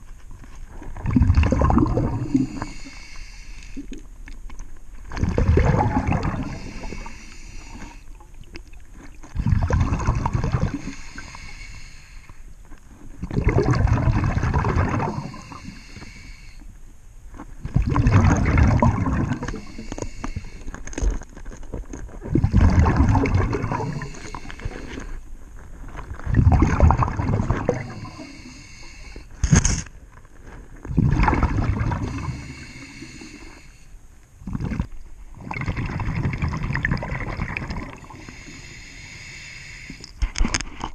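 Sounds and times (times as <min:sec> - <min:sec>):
diver exhaling bubbles: 0:00.9 - 0:04.1, 0:05.1 - 0:08.0, 0:09.2 - 0:11.9, 0:13.2 - 0:16.2, 0:17.6 - 0:20.7, 0:22.2 - 0:25.2, 0:26.2 - 0:29.2, 0:30.9 - 0:33.7, 0:34.4 - 0:40.1
breathing through regulator: 0:01.6 - 0:04.0, 0:05.5 - 0:08.2, 0:09.5 - 0:12.5, 0:14.2 - 0:16.7, 0:18.0 - 0:21.1, 0:22.9 - 0:25.2, 0:27.0 - 0:29.4, 0:31.2 - 0:34.0, 0:37.7 - 0:40.2.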